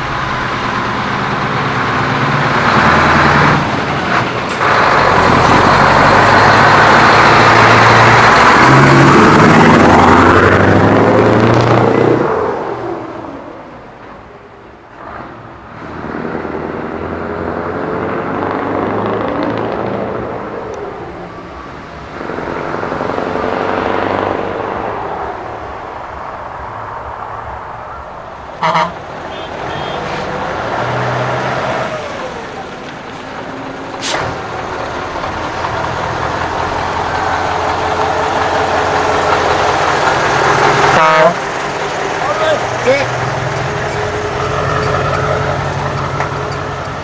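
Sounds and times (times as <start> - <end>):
trucks driving past: 0.0 - 47.0
truck horn toot: 28.6 - 30.3, 40.9 - 41.4.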